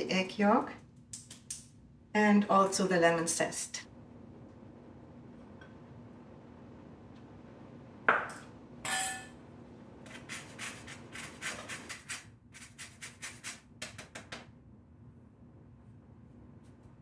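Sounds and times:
utensils set down clinking: 8.9s - 9.3s
lemon scraped on metal grater: 10.1s - 13.6s.

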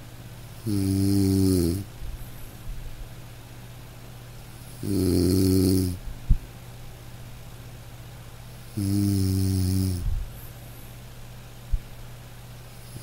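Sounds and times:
man snoring: 0.6s - 1.9s, 4.8s - 6.0s, 8.8s - 10.0s.

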